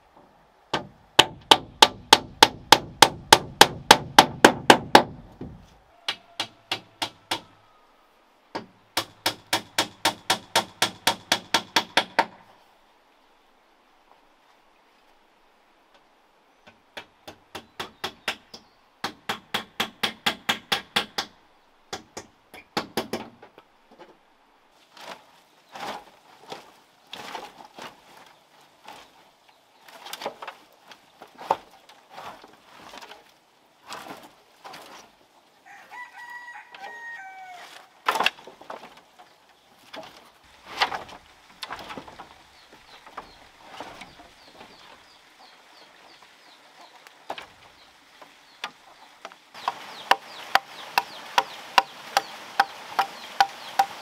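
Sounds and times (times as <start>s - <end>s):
rooster crowing: 5.8s - 8.1s, 35.6s - 37.8s
dry branches clattering: 23.2s - 54.0s.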